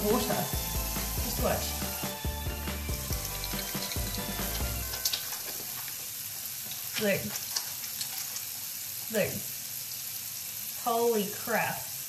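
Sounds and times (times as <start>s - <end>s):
tap water running into sink: 2.7s - 9.0s.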